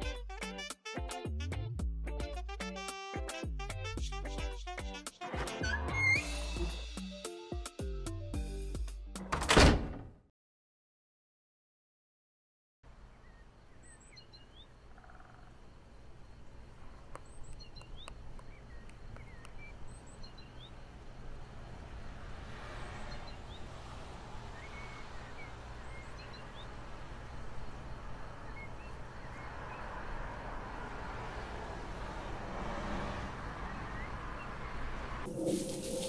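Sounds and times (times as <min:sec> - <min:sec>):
small birds chirping: 0:13.0 - 0:21.7, 0:22.8 - 0:30.2, 0:33.4 - 0:35.1.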